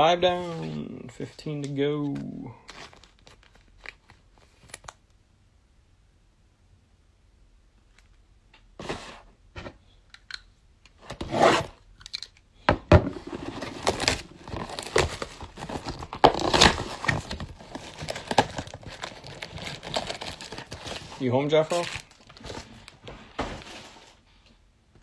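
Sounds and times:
packaging crinkling: 0:02.1 - 0:05.0, 0:13.3 - 0:23.9
cardboard box tearing: 0:13.2 - 0:22.6.

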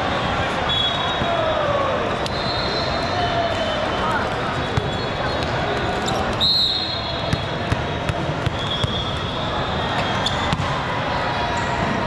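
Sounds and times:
murmur of voices: 0:00.0 - 0:12.0
volleyball hits and thumps: 0:10.4 - 0:10.8.

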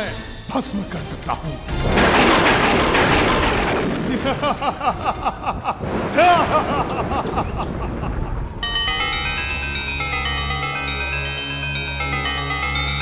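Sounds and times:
man laughing: 0:04.0 - 0:08.5.

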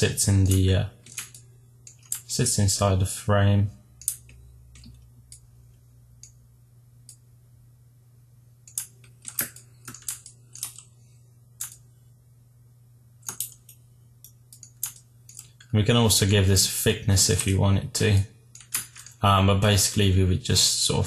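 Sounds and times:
faint low hum: 0:00.0 - 0:21.0
keyboard and mouse clicks: 0:00.4 - 0:02.3, 0:04.0 - 0:05.5, 0:08.6 - 0:10.9, 0:11.6 - 0:11.8, 0:13.2 - 0:15.7, 0:18.5 - 0:19.2.

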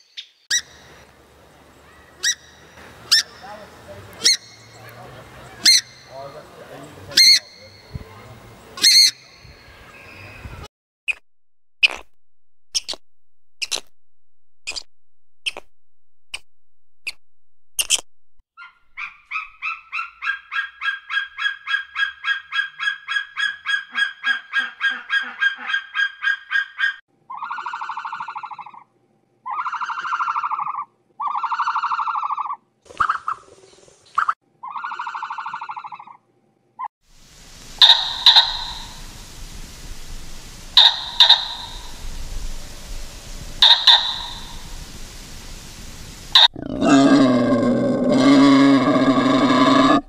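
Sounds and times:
repeated bird calls: 0:01.8 - 0:10.7, 0:37.7 - 0:39.2, 0:40.7 - 0:42.2, 0:43.6 - 0:44.8
long honking calls: 0:43.6 - 0:44.8.

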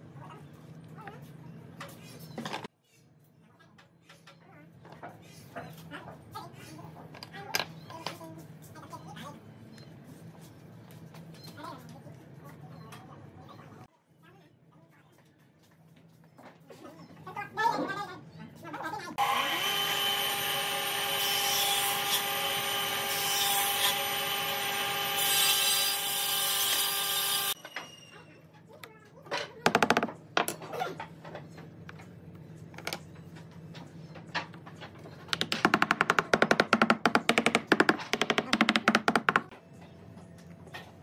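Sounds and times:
motor hum with high whine: 0:19.2 - 0:28.1.

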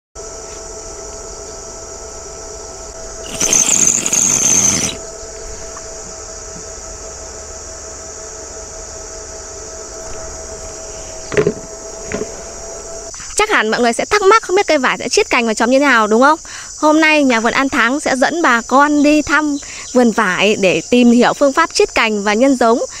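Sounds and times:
high-pitched insect chorus: 0:00.2 - 0:23.0
loud harsh burst of noise: 0:03.0 - 0:05.1.

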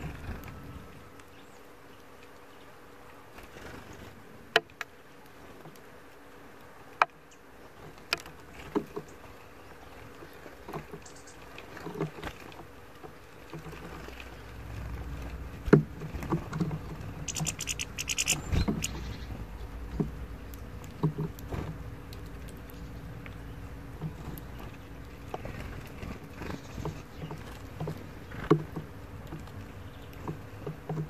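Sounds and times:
bird pecking seeds in metal dish: 0:17.2 - 0:19.0.

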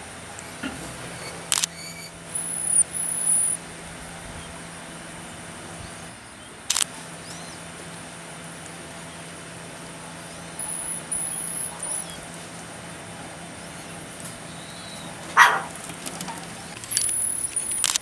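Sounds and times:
marmosets whistling calls: 0:01.2 - 0:04.7, 0:07.2 - 0:07.6, 0:10.2 - 0:12.3, 0:13.0 - 0:15.8.

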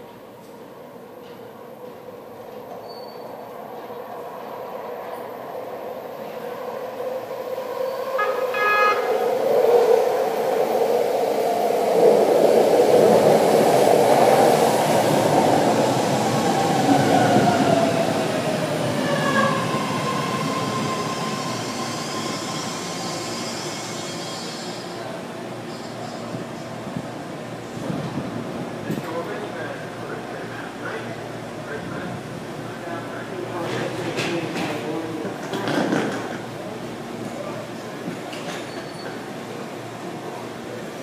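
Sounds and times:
subway train rumble: 0:00.0 - 0:41.0
train horn tone: 0:08.2 - 0:09.2.

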